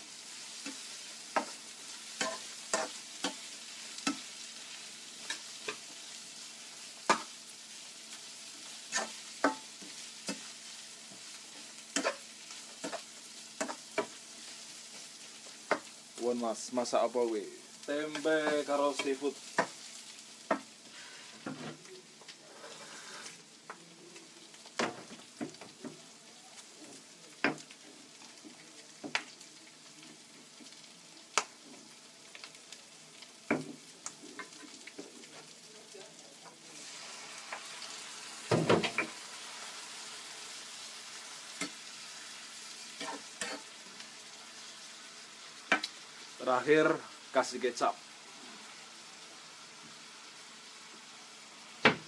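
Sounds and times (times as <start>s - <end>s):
food sizzling in a frying pan: 0.0s - 52.0s
spatula scraping and knocking pan: 0.6s - 1.6s, 2.2s - 4.3s, 8.9s - 10.5s.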